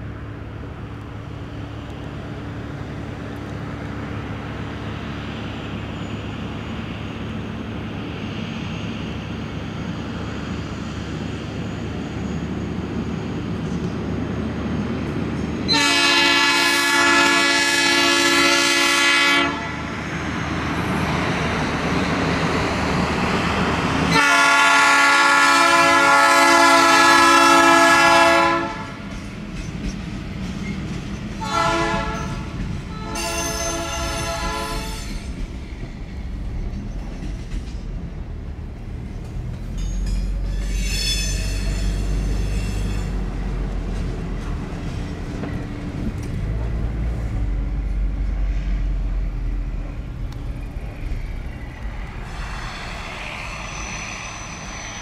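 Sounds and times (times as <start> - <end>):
truck engine and rolling rumble: 0.0 - 15.7, 19.9 - 24.2, 35.1 - 55.0
air horn blasts: 15.7 - 19.9, 24.1 - 29.0, 31.4 - 32.4, 33.0 - 35.0.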